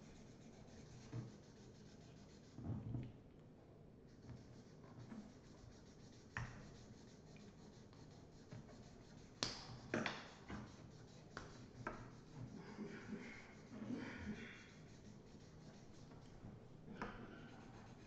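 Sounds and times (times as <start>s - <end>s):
markers scratching on paper: 4.1s - 16.4s.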